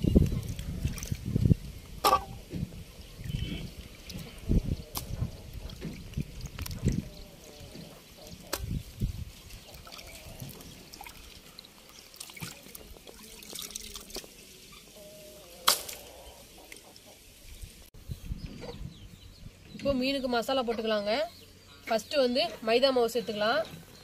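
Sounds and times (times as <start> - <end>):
water splashing and trickling: 0.0 - 17.9.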